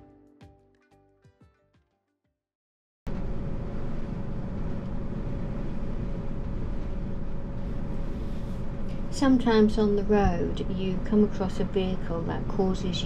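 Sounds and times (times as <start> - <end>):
faint steady hum: 3.1 - 13.0.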